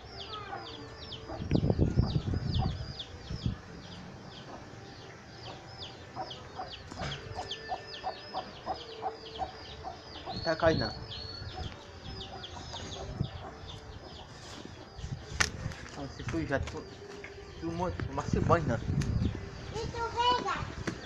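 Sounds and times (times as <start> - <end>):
chick peeping: 0.1 - 15.6.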